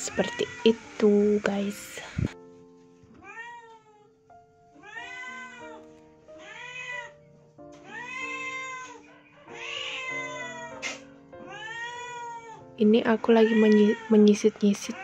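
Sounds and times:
background music with held notes: 0:00.0 - 0:15.0
cat meowing: 0:03.2 - 0:04.1, 0:04.8 - 0:05.8, 0:06.4 - 0:07.2, 0:07.8 - 0:12.7, 0:13.4 - 0:14.2.

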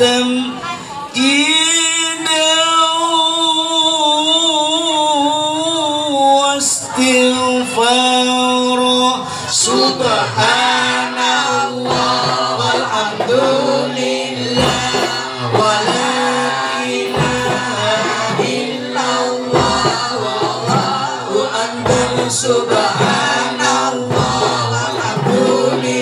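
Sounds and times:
man singing through a pa: 0:00.0 - 0:26.0
children singing: 0:09.5 - 0:26.0
hand drum strokes: 0:09.9 - 0:26.0.

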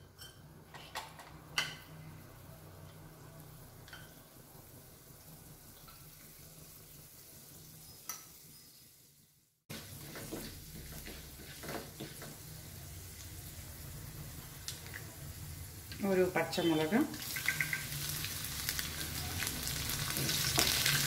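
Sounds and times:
lentils sizzling in hot oil: 0:01.4 - 0:21.0
spatula scraping a pan: 0:09.7 - 0:12.6.

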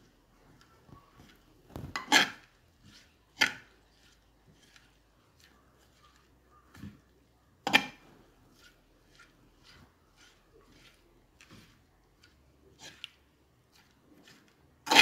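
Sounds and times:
spoon scraping clay pot: 0:00.0 - 0:15.0.

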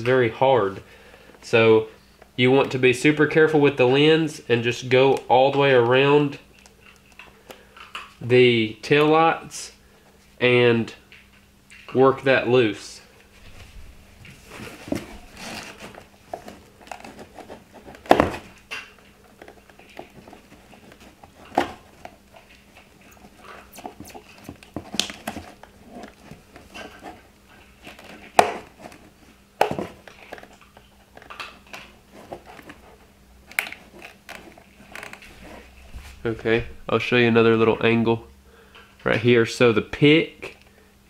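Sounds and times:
pick scraping plastic: 0:14.2 - 0:36.5.

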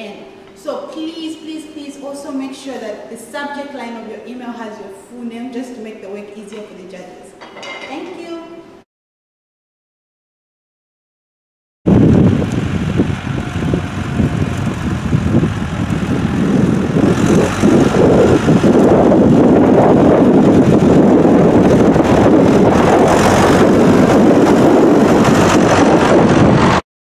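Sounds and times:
tractor engine running: 0:12.0 - 0:26.8.

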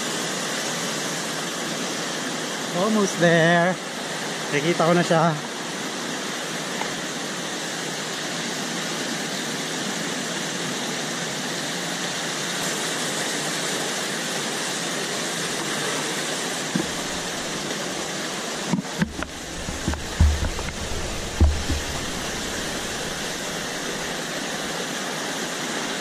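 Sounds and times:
waterfall and stream rushing: 0:00.0 - 0:26.0
low thumps and knocks: 0:16.7 - 0:17.6, 0:18.7 - 0:24.4.

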